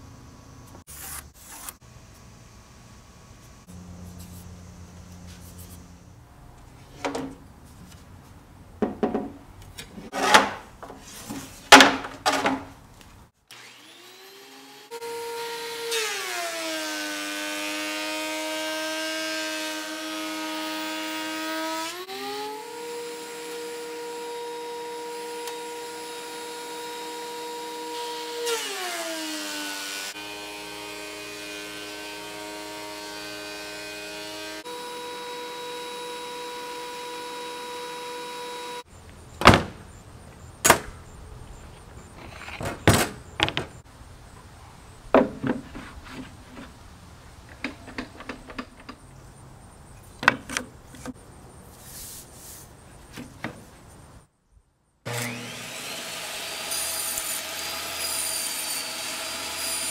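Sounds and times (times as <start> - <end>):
thickness planer cutting board: 9.9 - 12.6, 55.1 - 59.9
loud scrapes: 10.0 - 11.7
dust collector motor hum: 55.1 - 58.0.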